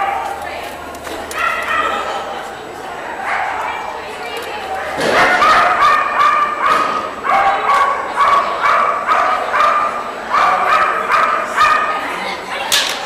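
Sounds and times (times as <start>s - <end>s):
dog barking: 1.4s - 2.0s, 5.1s - 12.0s.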